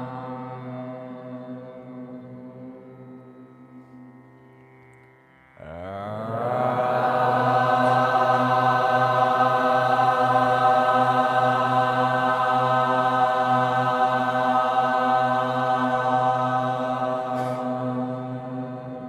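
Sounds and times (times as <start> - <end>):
man chanting a long note: 5.6 - 11.5, 15.4 - 19.0.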